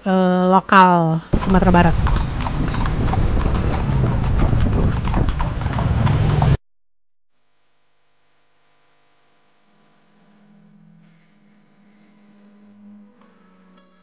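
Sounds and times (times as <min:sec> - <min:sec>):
horse hooves clip-clopping on road: 0:01.4 - 0:06.6
low rumble: 0:01.4 - 0:06.6.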